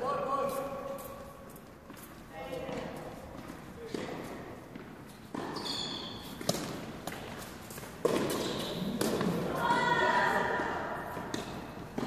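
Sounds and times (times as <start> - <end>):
rackets striking tennis ball: 2.6 - 12.0
tennis ball bouncing on court: 2.6 - 12.0.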